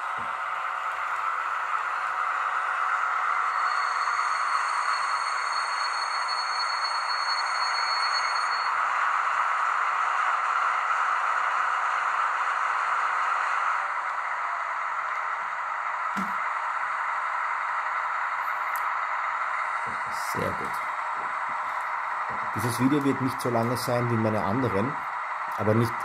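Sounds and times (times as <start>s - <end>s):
high whine: 0.0s - 9.2s, 13.8s - 26.0s
diesel engine idling through small speaker: 8.7s - 26.0s.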